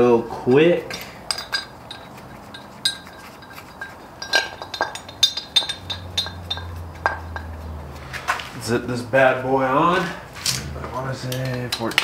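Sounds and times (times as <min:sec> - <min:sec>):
metal tools clinking on engine: 0:00.9 - 0:08.5.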